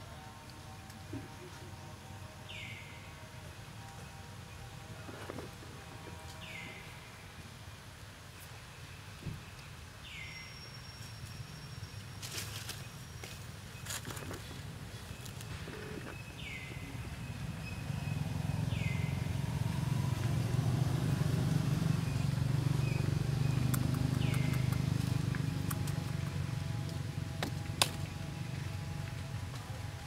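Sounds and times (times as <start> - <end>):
passing vehicle engine drone: 16.0 - 30.0.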